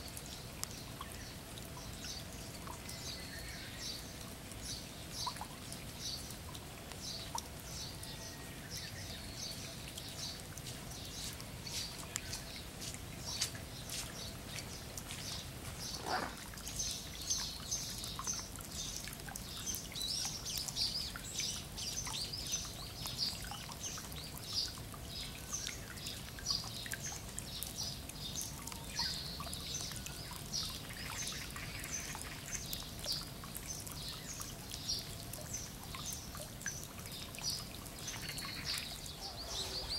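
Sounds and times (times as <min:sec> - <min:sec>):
rain pattering and dripping: 0:00.0 - 0:39.9
birds chirping: 0:13.3 - 0:18.3, 0:37.5 - 0:39.9.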